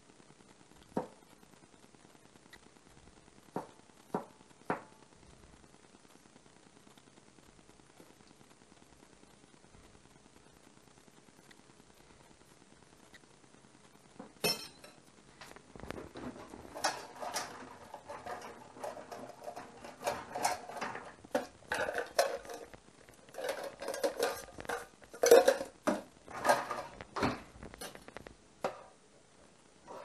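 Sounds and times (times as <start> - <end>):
utensils clattering against dishes: 14.4 - 15.0, 16.2 - 22.7, 23.3 - 28.0.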